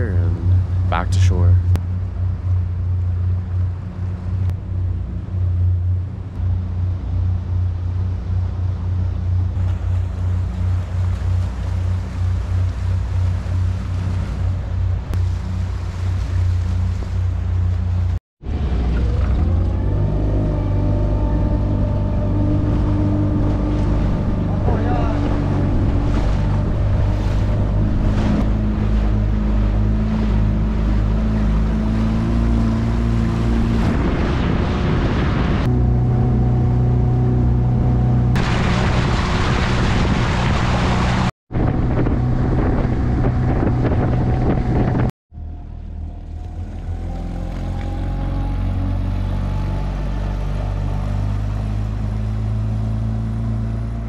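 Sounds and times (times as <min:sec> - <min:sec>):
boat engine running: 0:00.0 - 0:54.0
wind on microphone: 0:18.5 - 0:45.1.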